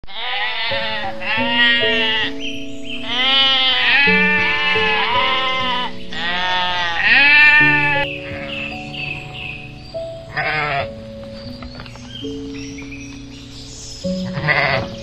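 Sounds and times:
sheep bleating: 0:00.0 - 0:02.4, 0:03.0 - 0:08.9, 0:10.3 - 0:11.0, 0:14.2 - 0:15.0
background music with held notes: 0:00.1 - 0:15.0.

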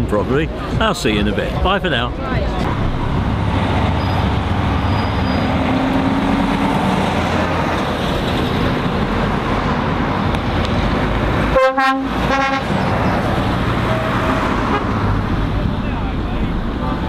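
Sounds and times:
lorry engines rumbling: 0:00.0 - 0:17.0
vehicle horn blasts: 0:11.5 - 0:12.7.

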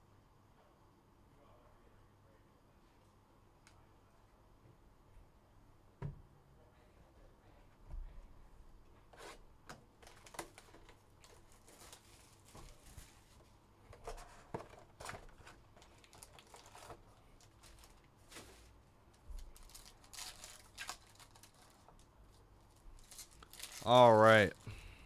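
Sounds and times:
foil packs rustling: 0:10.0 - 0:13.4, 0:14.0 - 0:24.6.

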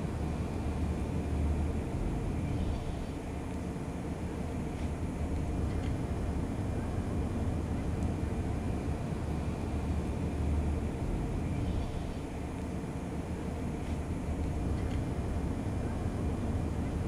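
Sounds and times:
low outdoor rumble: 0:00.0 - 0:17.0.

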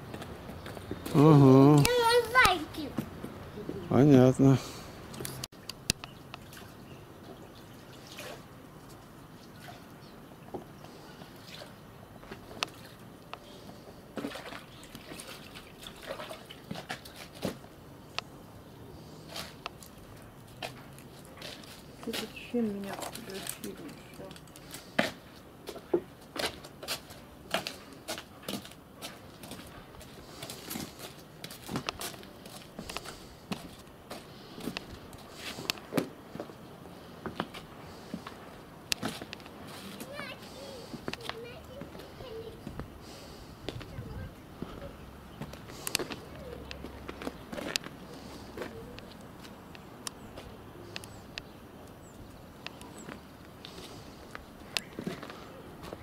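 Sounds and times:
hands splashing water in basin: 0:14.2 - 0:17.4.

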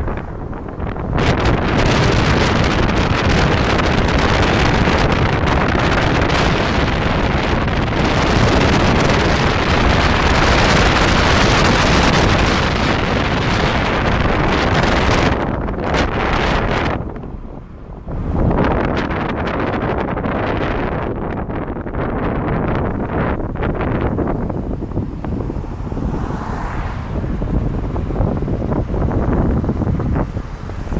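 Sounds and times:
road noise: 0:00.0 - 0:30.9
wind rushing over microphone: 0:00.0 - 0:30.9.

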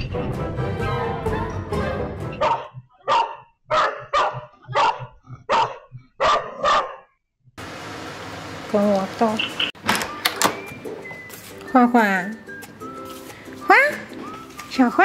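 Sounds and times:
background music: 0:00.0 - 0:02.9, 0:09.8 - 0:15.0
dog barking: 0:02.4 - 0:07.1.

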